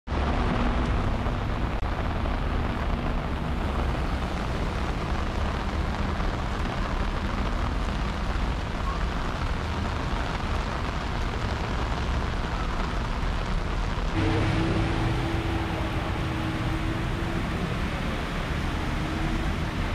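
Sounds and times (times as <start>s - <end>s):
steady rain hiss: 0.1s - 19.9s
deep low rumble: 13.0s - 19.9s.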